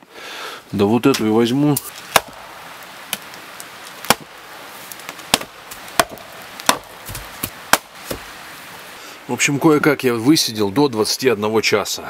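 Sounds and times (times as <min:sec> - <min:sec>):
axe chopping firewood: 0:01.1 - 0:08.3.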